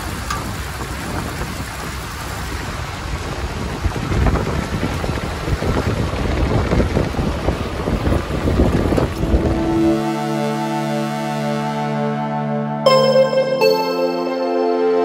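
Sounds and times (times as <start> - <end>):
wind on microphone: 0.0 - 9.9.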